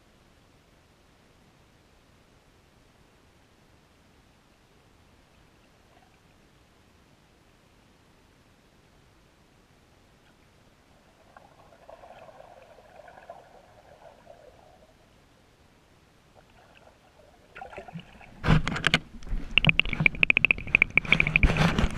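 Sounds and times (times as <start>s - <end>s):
faint underwater hum: 0.0s - 21.9s
knocking and rattling on camera: 18.4s - 21.9s.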